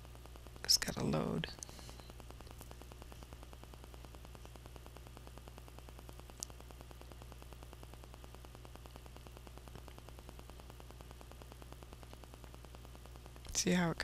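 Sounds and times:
electrical hum: 0.0 - 14.0
faint click: 6.4 - 6.6.

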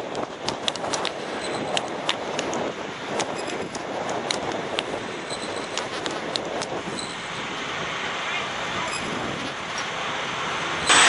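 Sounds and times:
sharp clicks: 0.0 - 6.8
jet engines roaring: 0.0 - 11.0.

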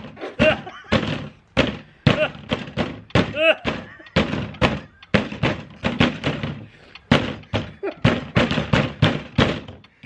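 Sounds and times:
fists pounding plastic table: 0.4 - 9.8.

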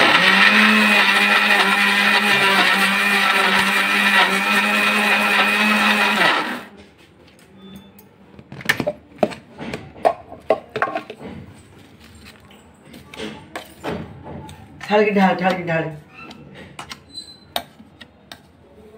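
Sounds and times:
electric mixer grinder whining: 0.0 - 6.7.

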